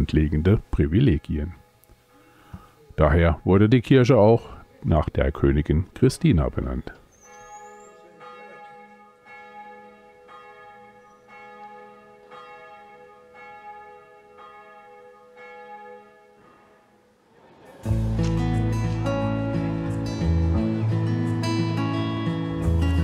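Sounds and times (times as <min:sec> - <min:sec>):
church bells ringing: 0:07.2 - 0:17.2.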